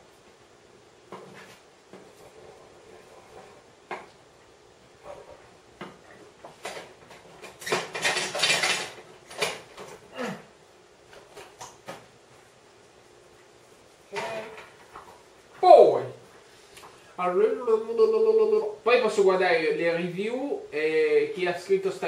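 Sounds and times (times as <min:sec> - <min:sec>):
pots and pans clinking: 0:07.6 - 0:09.6.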